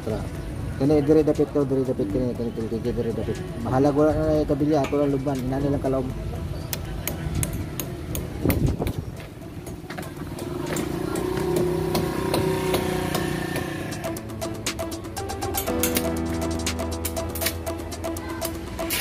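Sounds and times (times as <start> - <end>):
engine humming: 6.1 - 19.0.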